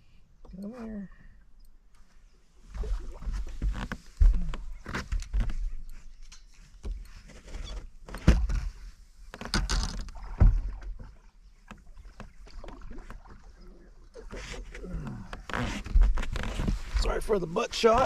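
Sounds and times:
water splashing: 2.7s - 3.6s, 10.2s - 14.6s.

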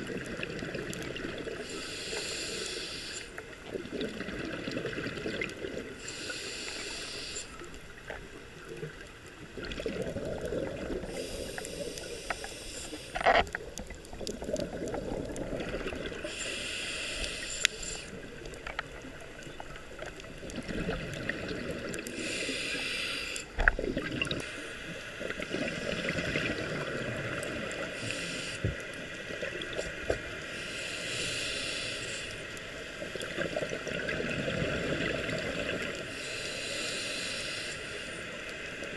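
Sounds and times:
exhale bubbling: 0.0s - 7.5s, 8.8s - 18.6s, 20.3s - 24.6s, 25.3s - 28.8s
regulator hissing inhale: 1.6s - 3.6s, 6.0s - 7.8s, 11.0s - 13.5s, 16.1s - 18.4s, 22.0s - 23.6s, 24.4s - 25.2s, 27.7s - 28.9s, 30.3s - 32.8s, 35.8s - 38.7s.

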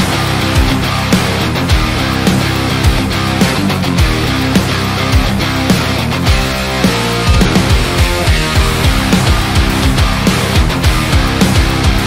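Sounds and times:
rock guitar chords: 0.0s - 12.0s
kick drum beat: 7.3s - 12.0s.

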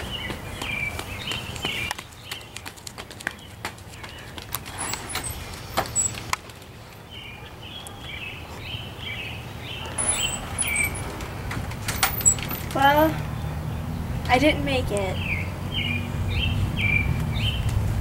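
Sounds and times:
sharp footsteps: 0.0s - 7.1s
small birds chirping: 0.0s - 17.8s.

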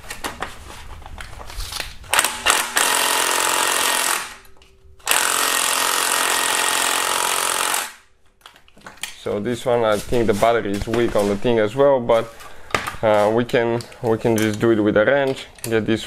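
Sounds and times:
cordless power ratchet running: 5.1s - 8.0s.

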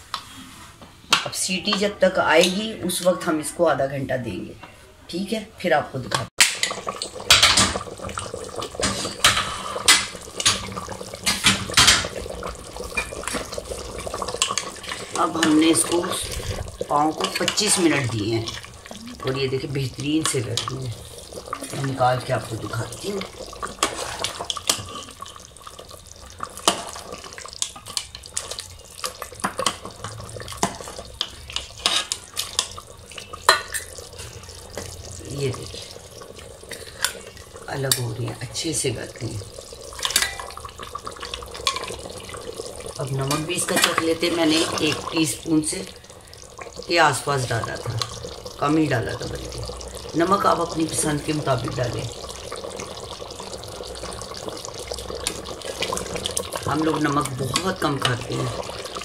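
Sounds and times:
gravy boiling and bubbling: 0.0s - 59.0s
liquid sloshing: 6.6s - 38.3s.

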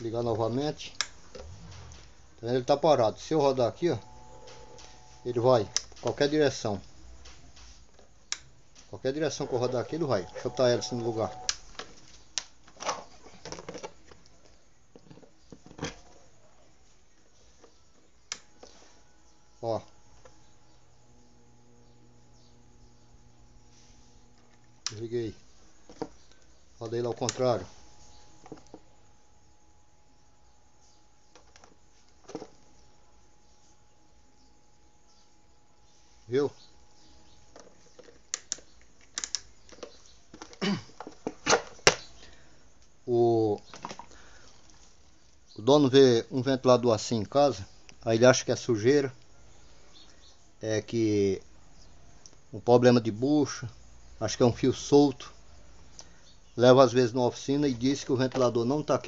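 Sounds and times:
sharp plastic click: 38.3s - 40.0s.

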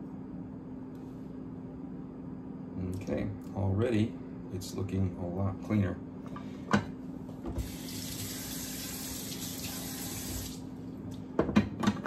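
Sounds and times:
faucet running into steel sink: 7.6s - 10.6s.

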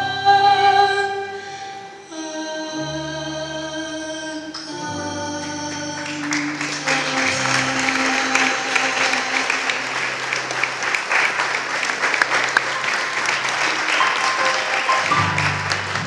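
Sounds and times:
music playing: 4.7s - 16.0s
audience applauding: 5.9s - 16.0s.

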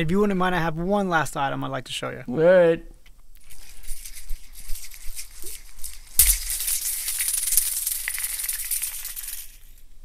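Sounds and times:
plastic spring toy rattling: 3.4s - 9.8s.

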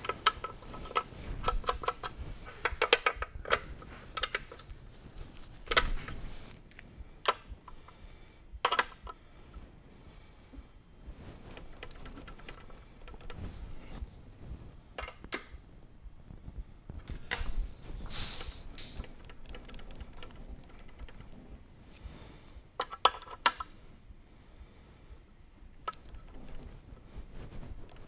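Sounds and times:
handling noise: 0.0s - 8.0s.

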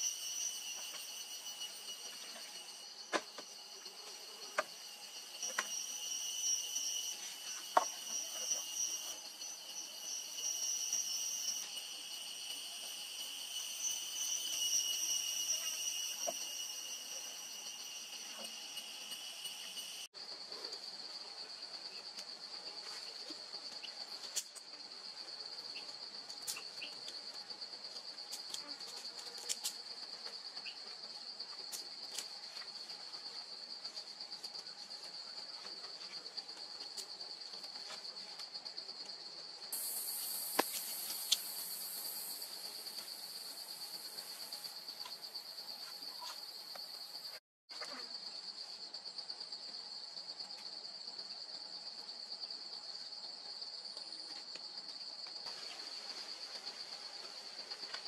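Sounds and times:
high-pitched insect buzz: 0.0s - 20.1s, 39.8s - 48.2s
insects chirring in a trill: 0.0s - 58.0s.

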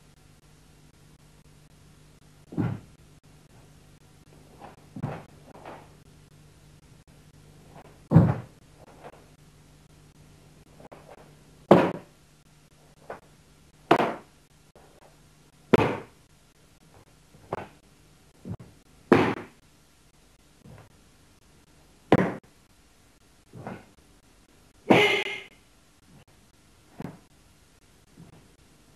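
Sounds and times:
faint steady hum: 0.0s - 28.9s
bare feet thudding on wooden floor: 2.5s - 3.0s, 4.5s - 6.0s, 7.7s - 9.3s, 10.9s - 12.1s, 13.9s - 14.3s, 15.7s - 16.2s, 18.4s - 19.6s, 22.1s - 22.4s, 23.5s - 23.9s.

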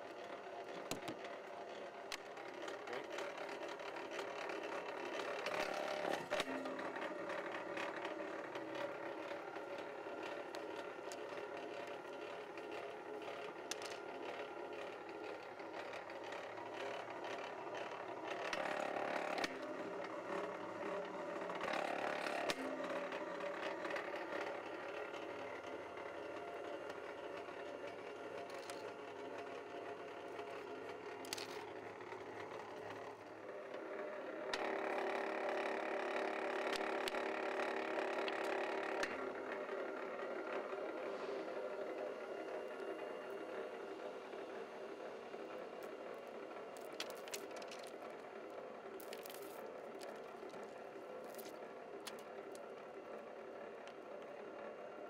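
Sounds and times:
cable fed through blades: 0.0s - 55.0s
wire stripping machine humming: 0.0s - 55.0s.

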